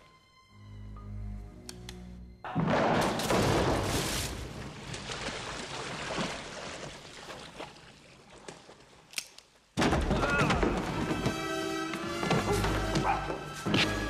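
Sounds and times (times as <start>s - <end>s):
water splashing and churning: 3.3s - 9.1s.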